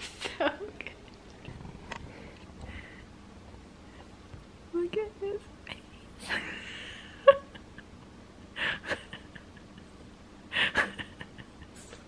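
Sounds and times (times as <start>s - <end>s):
soft breaths: 1.4s - 4.2s.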